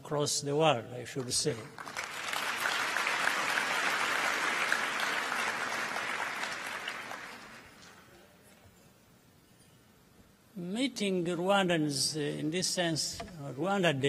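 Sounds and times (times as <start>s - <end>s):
audience applauding: 1.2s - 8.0s.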